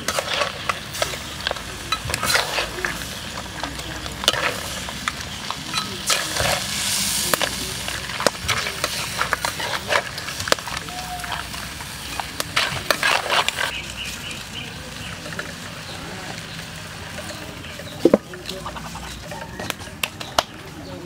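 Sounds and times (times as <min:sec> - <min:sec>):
metal spatulas scraping a wok: 0:00.0 - 0:10.8, 0:12.1 - 0:14.3.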